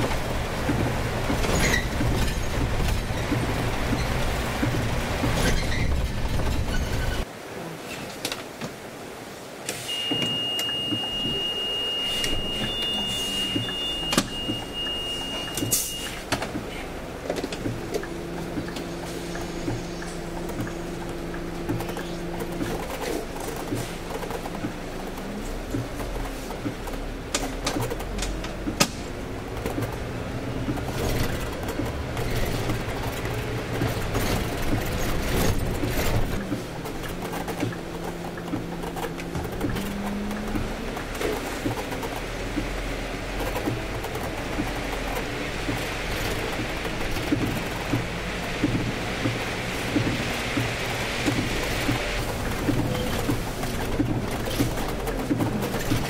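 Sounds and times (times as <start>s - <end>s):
windscreen wipers sweeping: 0.0s - 7.3s, 9.6s - 56.0s
bus engine hum: 0.0s - 8.0s, 9.7s - 56.0s
rain: 0.0s - 56.0s
tyres hissing on wet road: 9.0s - 56.0s
bus door clicks and air hisses: 9.6s - 20.6s
brief higher beeps: 9.9s - 16.2s
electronic warning beep: 9.9s - 16.2s.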